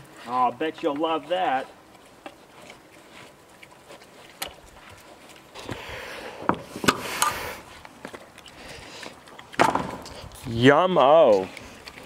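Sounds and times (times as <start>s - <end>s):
pigs crunching and chewing: 0.0s - 12.0s.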